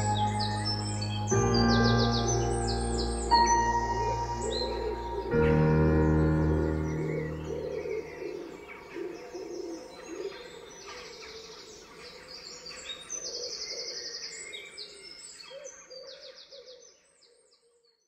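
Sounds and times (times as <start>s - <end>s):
birds singing: 0.0s - 16.7s.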